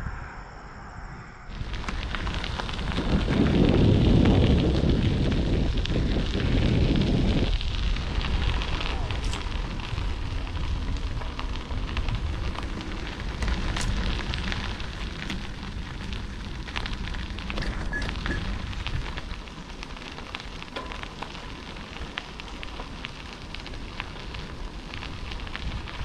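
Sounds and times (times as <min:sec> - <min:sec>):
gravel crackling under tyres: 0:00.0 - 0:26.0
wind rumble on microphone: 0:00.0 - 0:26.0.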